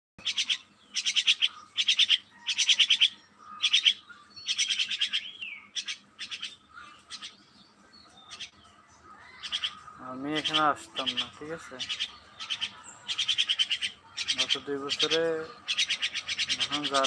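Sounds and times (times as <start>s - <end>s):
myna chattering: 8.3s - 17.0s.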